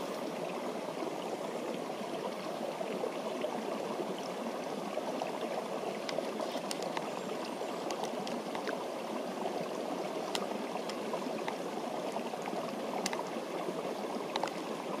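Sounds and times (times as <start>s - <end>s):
stream rushing: 0.0s - 15.0s
faint high clicks: 6.0s - 8.8s.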